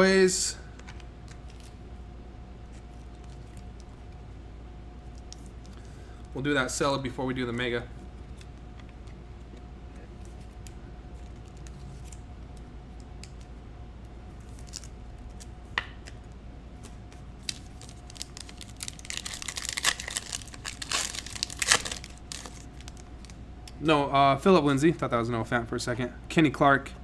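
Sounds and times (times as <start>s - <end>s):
cellophane wrapper crinkling and tearing: 14.4s - 15.5s, 17.4s - 23.4s.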